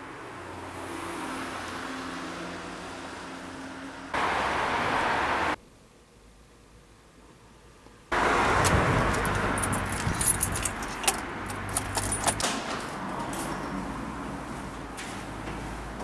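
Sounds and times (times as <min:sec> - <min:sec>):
street noise: 0:00.0 - 0:05.6, 0:06.7 - 0:16.0
car engine rumbling: 0:08.2 - 0:12.4
keys jangling: 0:09.1 - 0:12.5.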